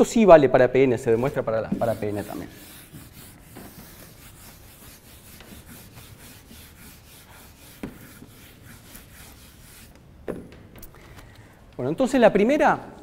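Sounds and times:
chalk scratching on a blackboard: 0:01.0 - 0:10.0.

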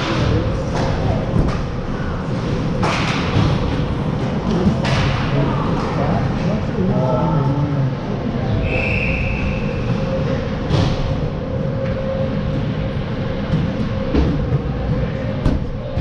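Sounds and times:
ice rink rumble and hum: 0:00.0 - 0:16.0
referee's whistle: 0:08.6 - 0:09.8.

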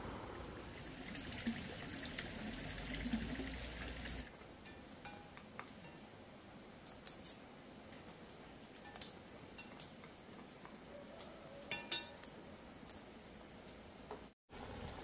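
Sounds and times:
kitchenware clinking: 0:11.7 - 0:12.2.

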